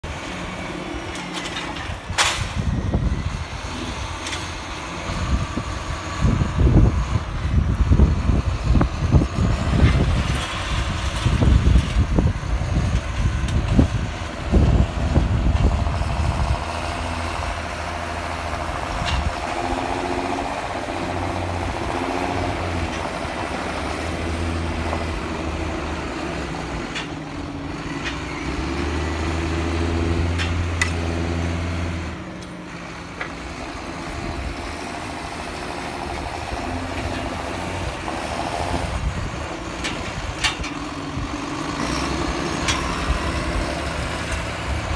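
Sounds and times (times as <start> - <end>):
tractor engine: 0.0 - 44.9
wind buffeting microphone: 1.9 - 27.5, 35.8 - 44.9.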